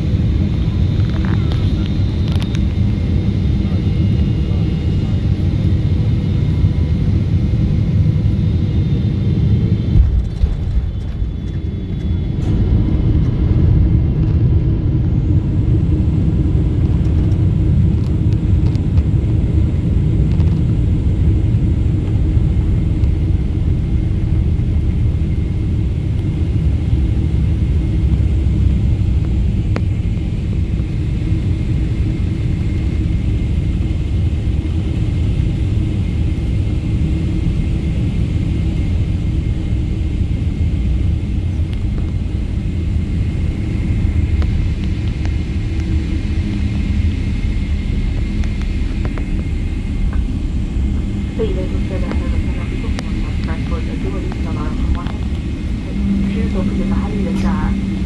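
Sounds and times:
airplane cabin engine rumble: 0.0s - 58.0s
faint high whine: 42.2s - 58.0s.

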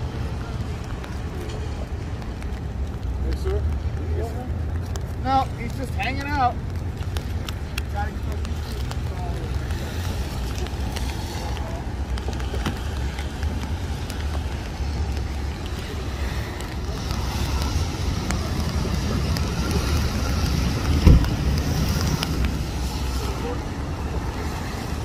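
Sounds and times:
traffic on wet pavement: 0.0s - 25.0s
wind buffeting microphone: 0.0s - 25.0s
short thump: 21.0s - 21.4s.

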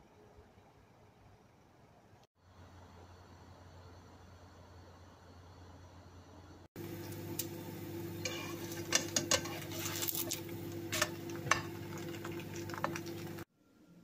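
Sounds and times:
steady low hum: 0.0s - 14.0s
spatula scraping frying pan: 8.2s - 13.4s.

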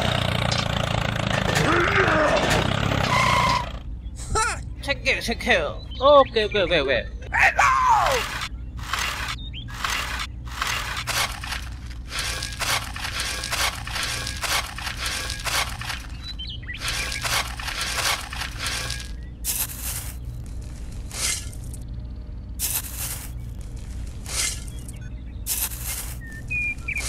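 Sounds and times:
metal trowel scraping dry soil: 8.2s - 21.8s, 22.6s - 27.0s.

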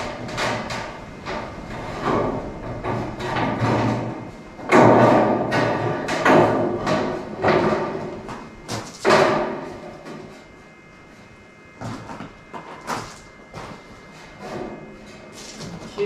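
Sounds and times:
metal thumps and clangs: 0.0s - 10.5s.

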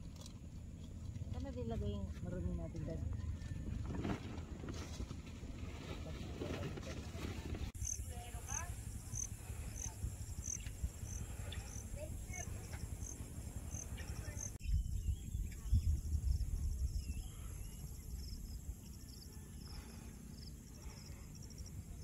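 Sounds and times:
wind rumble on microphone: 1.0s - 20.0s
insects chirping: 7.8s - 22.0s.

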